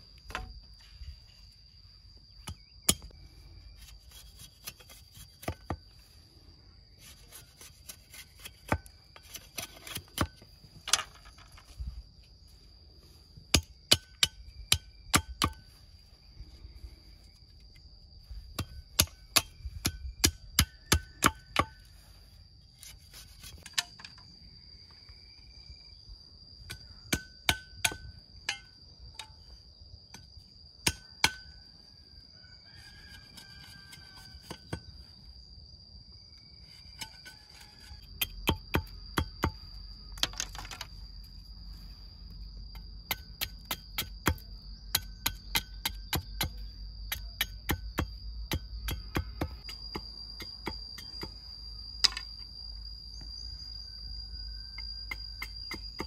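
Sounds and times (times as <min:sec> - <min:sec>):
high insect drone: 0:00.0 - 0:56.0
machete chopping bamboo: 0:07.3 - 0:11.0, 0:13.6 - 0:15.6, 0:18.6 - 0:21.8, 0:45.0 - 0:50.1.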